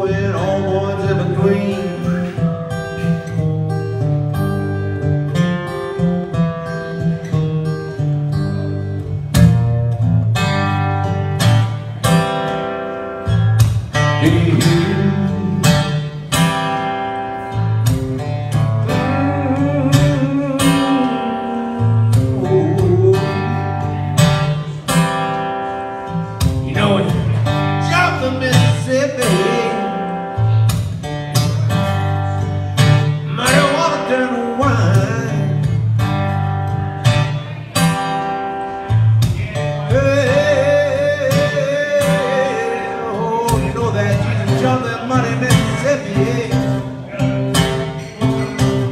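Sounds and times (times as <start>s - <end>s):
man singing: 0.0s - 3.2s, 13.9s - 17.5s, 18.5s - 24.6s, 26.5s - 30.6s, 32.9s - 35.9s, 39.2s - 48.8s
acoustic guitar playing blues: 0.0s - 48.9s.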